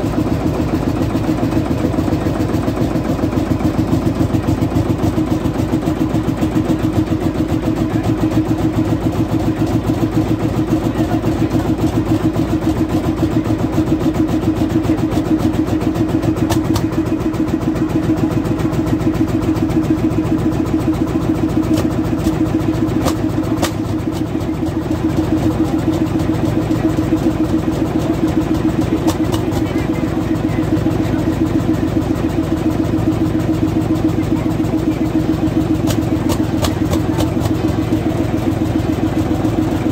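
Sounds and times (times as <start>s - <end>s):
tractor engine idling: 0.0s - 39.9s.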